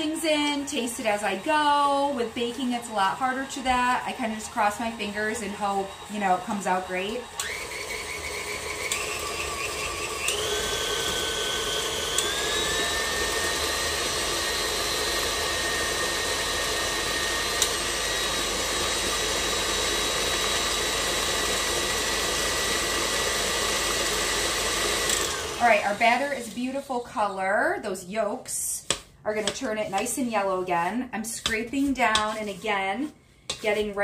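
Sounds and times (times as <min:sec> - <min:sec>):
stand mixer motor whining: 0:00.0 - 0:26.7.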